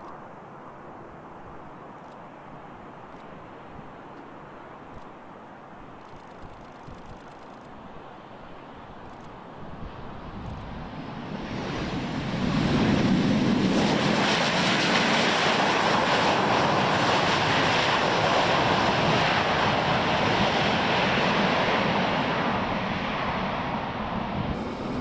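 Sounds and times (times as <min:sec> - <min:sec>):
jet engines roaring: 0:10.9 - 0:25.0.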